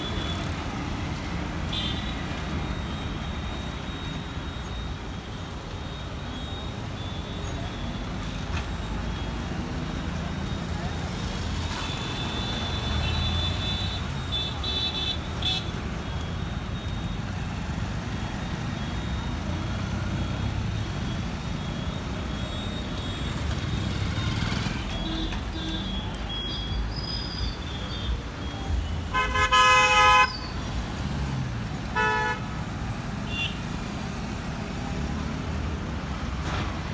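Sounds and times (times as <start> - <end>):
vehicle horn toots: 29.1 - 30.3, 32.0 - 32.4.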